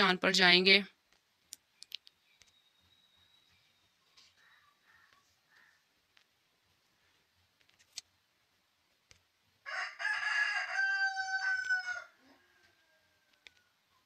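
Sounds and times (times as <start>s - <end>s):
rooster crowing: 9.6s - 13.8s.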